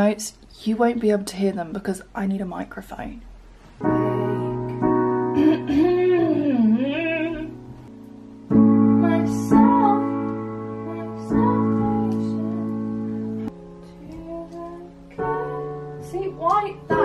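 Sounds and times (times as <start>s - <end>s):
woman singing softly: 3.8s - 7.6s, 8.8s - 13.0s, 13.8s - 17.0s
digital piano chords: 3.8s - 17.0s.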